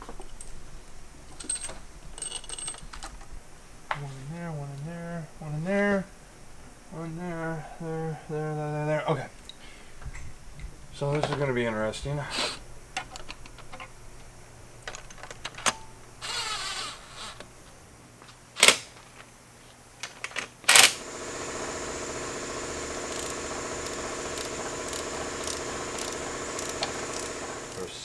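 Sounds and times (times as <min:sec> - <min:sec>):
steady mechanical hum: 0:00.0 - 0:28.0
cordless power tool whirring: 0:16.2 - 0:17.5, 0:20.7 - 0:28.0
clicks: 0:22.5 - 0:27.9.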